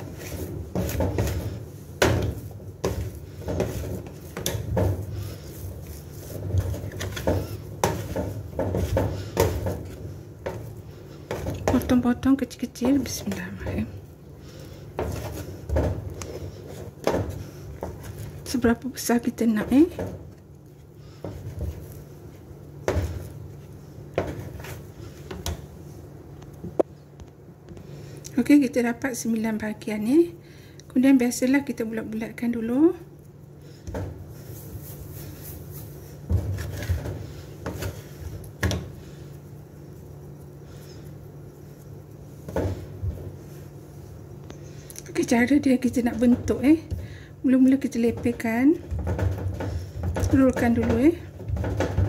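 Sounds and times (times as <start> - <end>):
dough scraper knocking and scraping: 0.0 - 12.0, 14.9 - 18.4, 48.0 - 52.0
dull thuds of dough pressed: 0.0 - 12.0
steady low hum: 0.0 - 52.0.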